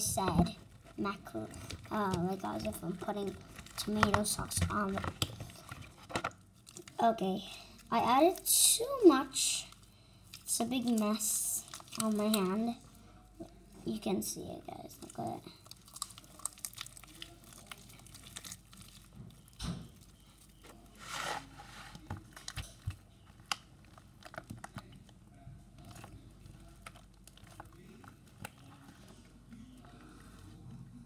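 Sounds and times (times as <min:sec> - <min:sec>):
slime squished by hand: 0:15.0 - 0:21.0.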